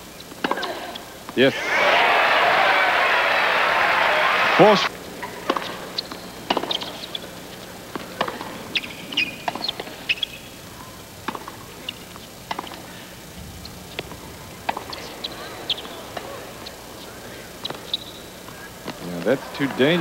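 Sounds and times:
tennis ball bouncing: 0.2s - 0.7s, 5.2s - 10.6s, 11.2s - 13.0s, 13.7s - 20.0s
shoes squeaking on court: 4.8s - 13.0s, 14.8s - 20.0s
racquets striking tennis ball: 5.2s - 10.6s, 11.2s - 13.0s, 13.7s - 20.0s.

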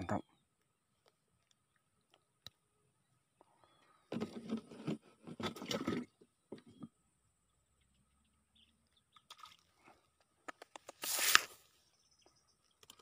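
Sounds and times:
rustling and scraping on microphone: 4.1s - 6.8s, 10.6s - 11.8s.

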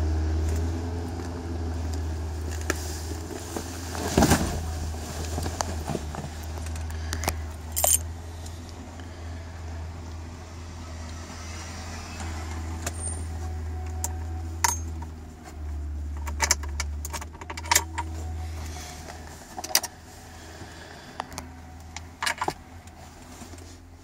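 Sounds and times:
car engine idling: 0.0s - 24.0s
steering stalk clicks and rattles: 16.0s - 18.2s.

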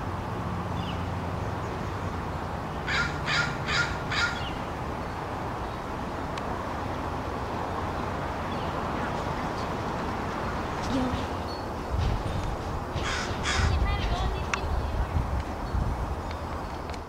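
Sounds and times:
steady background noise: 0.0s - 17.0s
crow cawing: 2.9s - 4.5s, 13.0s - 13.8s.

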